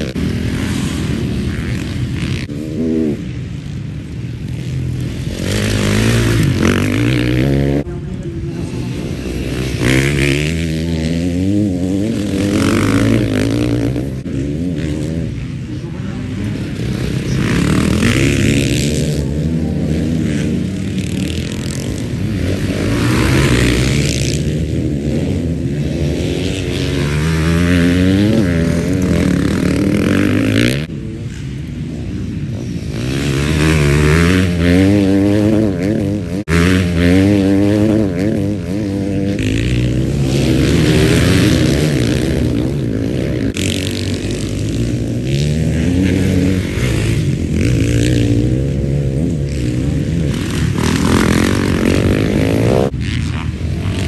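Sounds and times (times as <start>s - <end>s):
motocross bikes accelerating: 0.0s - 54.0s.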